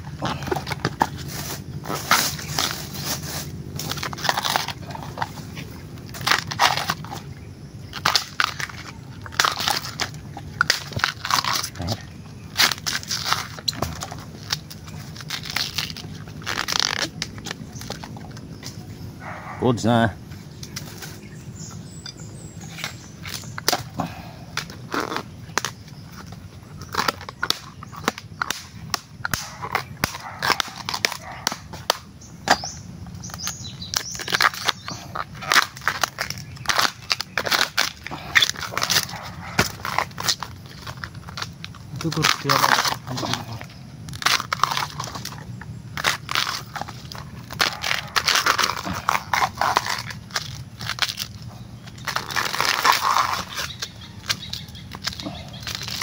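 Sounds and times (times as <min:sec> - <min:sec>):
husks being torn by hand: 0:00.0 - 0:19.6, 0:21.9 - 0:56.0
machete chopping bamboo shoot: 0:26.9 - 0:40.5.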